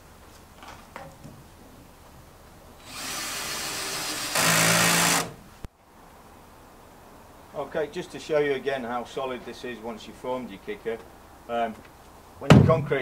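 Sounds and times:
cordless drill driving screw: 2.8s - 5.4s.

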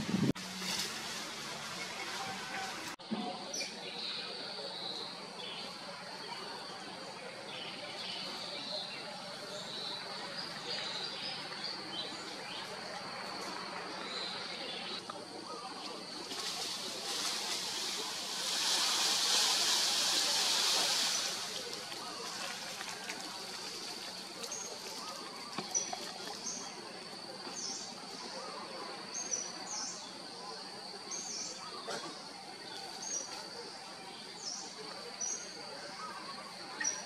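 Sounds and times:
loud hiss: 16.2s - 23.8s.

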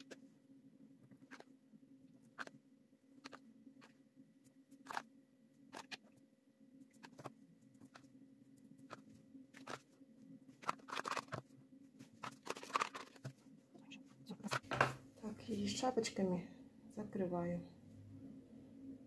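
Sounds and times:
teaspoon clicking and scraping: 12.2s - 13.3s.

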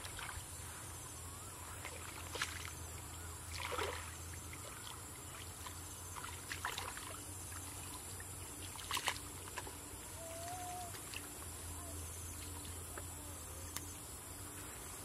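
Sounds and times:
splashing in muddy water: 0.0s - 0.4s, 1.8s - 11.4s
faint low hum: 0.0s - 15.0s.

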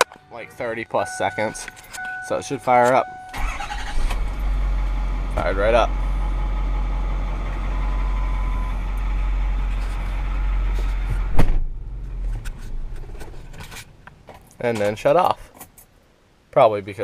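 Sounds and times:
diesel engine idling: 3.1s - 14.1s
engine stalling: 3.3s - 14.0s.

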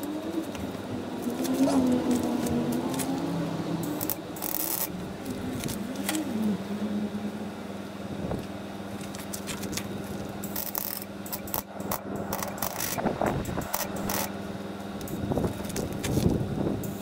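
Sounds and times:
steady low hum: 0.0s - 17.0s
welding arc crackle: 1.2s - 6.3s, 8.9s - 17.0s.

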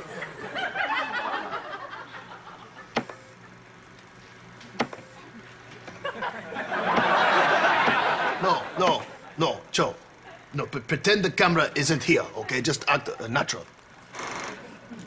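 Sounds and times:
studio audience laughter: 0.0s - 3.7s, 5.9s - 9.4s.

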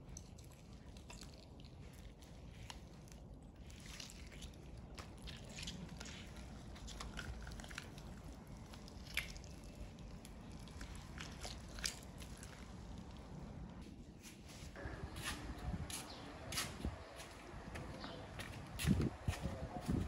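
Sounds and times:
meat tearing: 0.0s - 13.4s
crisp chicken skin crackling: 0.1s - 13.4s.

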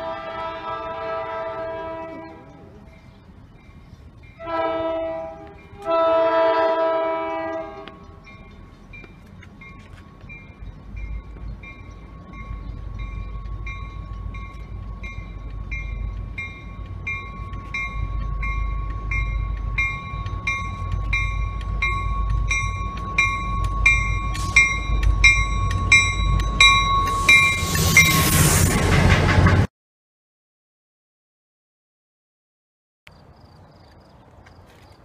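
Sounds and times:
train rumble: 0.0s - 29.7s
crossing bell ringing: 0.8s - 28.6s
steady tone: 9.7s - 29.5s.

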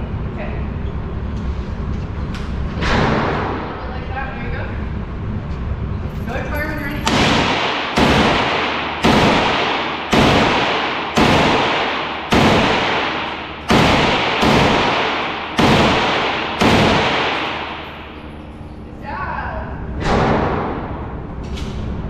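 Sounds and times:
gunshots with echoing decay: 7.0s - 18.3s.

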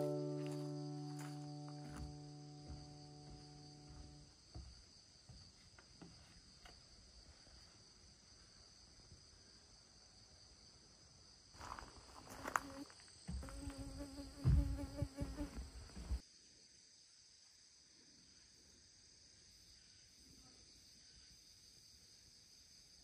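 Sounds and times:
crickets chirping: 0.0s - 23.0s
flying insect buzzing: 12.4s - 16.2s
knocks and thump: 14.4s - 16.2s.

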